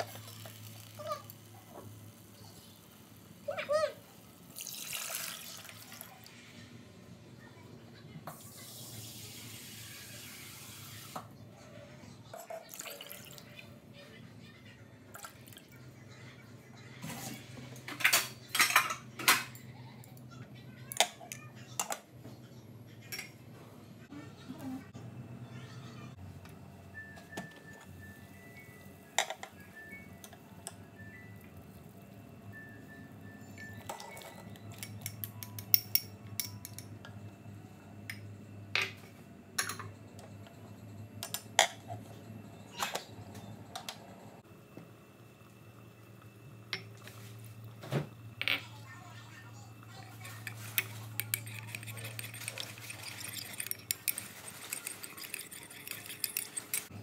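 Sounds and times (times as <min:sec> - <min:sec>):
metal kitchenware clinking: 0:17.9 - 0:19.6, 0:50.0 - 0:56.9
chopsticks knocking and scraping pot: 0:50.2 - 0:56.9.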